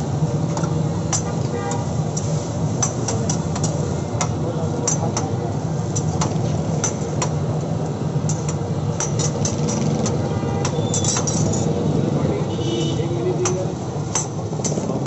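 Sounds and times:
busy food stall din: 0.0s - 15.0s
metal spatulas tapping on griddle: 0.5s - 7.4s, 8.2s - 11.6s, 13.3s - 15.0s.

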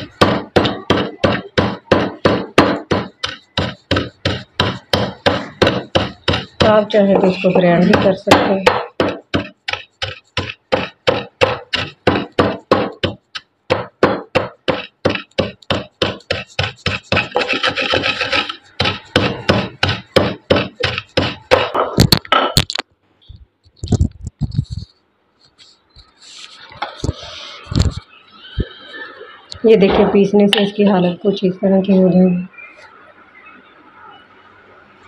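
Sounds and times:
pestle scraping in a mortar: 0.0s - 22.2s
pestle pounding in a mortar: 0.0s - 22.5s.

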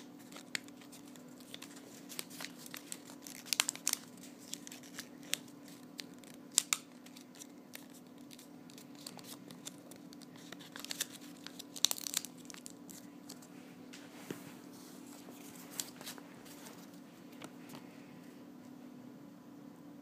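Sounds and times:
paper crinkling as folded: 0.0s - 13.5s, 15.0s - 17.5s.

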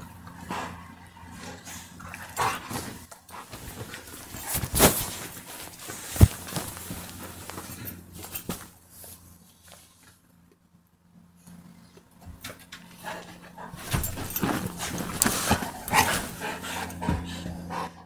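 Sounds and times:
dogs growling and snapping: 0.1s - 8.6s, 12.3s - 17.9s
dogs scuffling: 2.1s - 10.1s, 12.2s - 17.4s.

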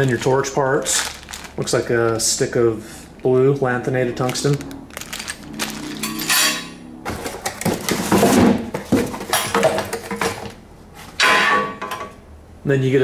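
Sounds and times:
plastic bag rustling: 0.0s - 10.6s.

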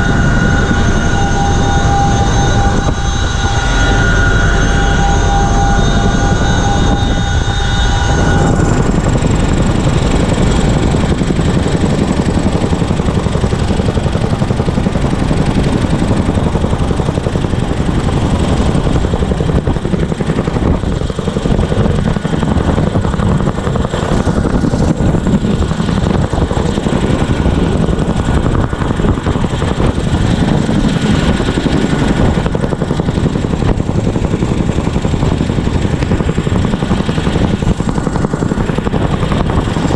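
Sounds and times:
high whining tones: 0.0s - 22.4s
helicopter rotor and turbine noise: 0.0s - 39.9s
wind buffeting microphone: 0.0s - 39.9s.

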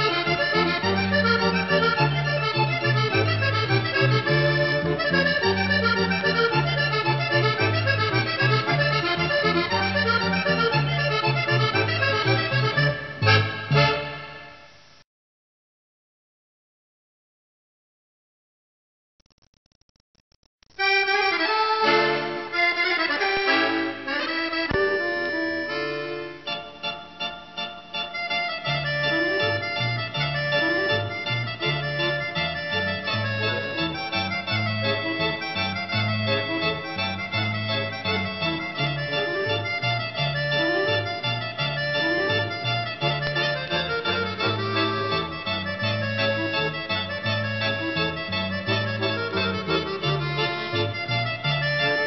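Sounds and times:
bass line: 0.0s - 14.2s, 28.8s - 52.0s
accordion music: 0.0s - 14.9s, 20.7s - 52.0s.

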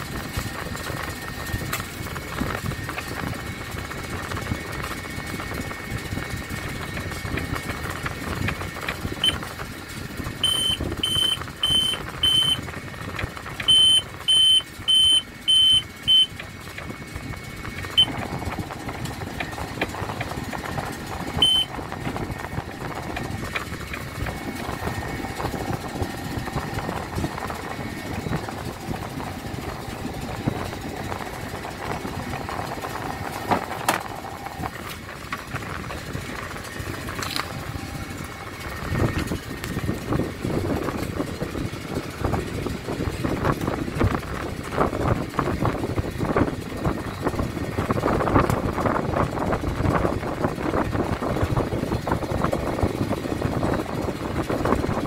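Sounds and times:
steady engine hum: 0.0s - 55.0s
short high electronic beeps: 10.4s - 12.6s, 13.7s - 16.4s, 17.9s - 18.2s, 21.4s - 21.7s.

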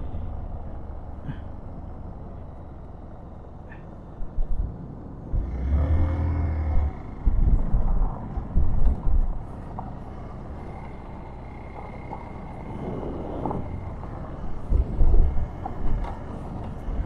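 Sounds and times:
wind buffeting microphone: 6.5s - 17.0s.

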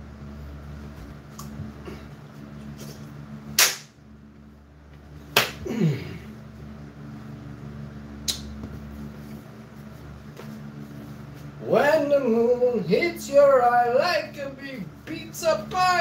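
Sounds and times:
dough slapping against hands: 3.6s - 4.0s, 5.3s - 5.7s.

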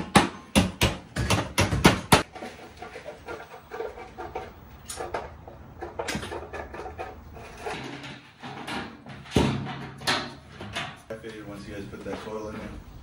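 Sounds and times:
sheet metal clanking and rattling: 2.2s - 11.1s.

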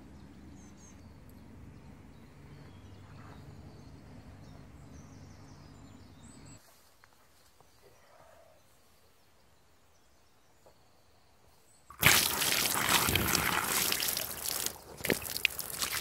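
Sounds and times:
faint bird chirps: 0.0s - 11.9s.

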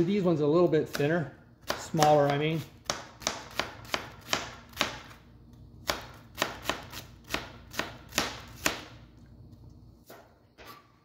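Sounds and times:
knife chopping on cutting board: 0.9s - 5.2s, 5.8s - 8.9s.

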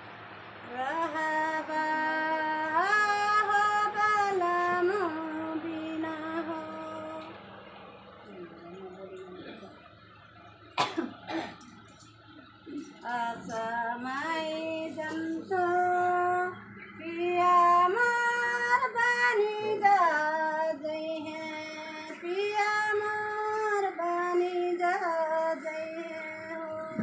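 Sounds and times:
woman singing a slow folk song: 0.6s - 7.4s, 12.8s - 27.0s.

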